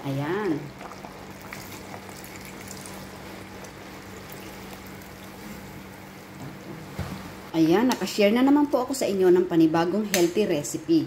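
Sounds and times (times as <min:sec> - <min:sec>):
liquid pouring and splashing: 0:00.7 - 0:05.7.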